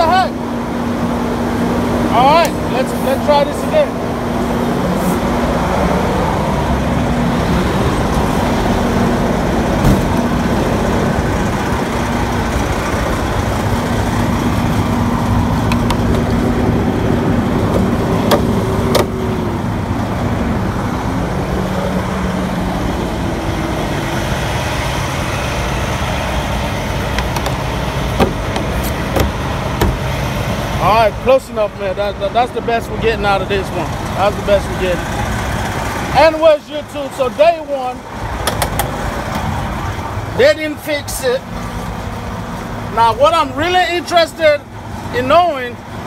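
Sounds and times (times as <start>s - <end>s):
truck engine idling: 0.0s - 46.0s
sharp knocks on body panel: 9.8s - 10.2s, 17.8s - 19.2s, 28.2s - 30.1s.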